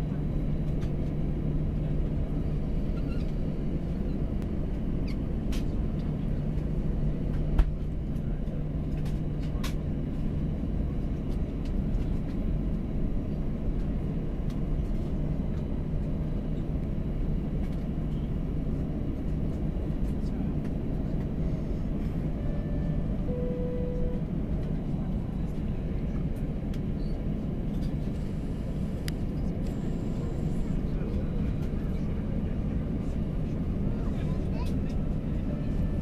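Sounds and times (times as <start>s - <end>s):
airplane cabin rumble: 0.0s - 36.0s.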